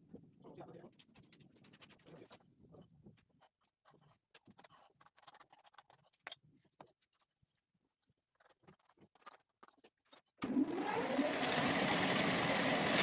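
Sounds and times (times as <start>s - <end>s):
faint small clicks and scratches: 0.2s - 10.4s.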